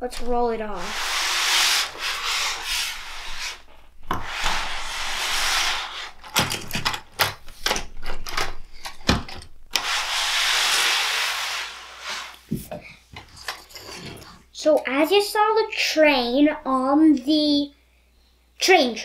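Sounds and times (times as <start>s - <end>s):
plastic wheels rasping on track: 0.1s - 6.3s, 9.8s - 12.4s.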